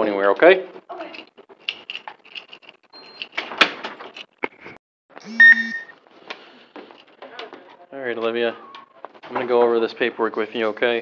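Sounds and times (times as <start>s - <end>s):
footsteps: 4.1s - 10.7s.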